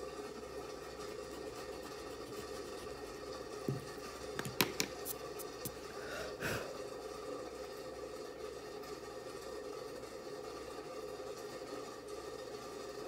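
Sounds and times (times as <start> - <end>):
room hum: 0.0 - 13.0
drawing tools clicking and tapping: 3.7 - 5.2.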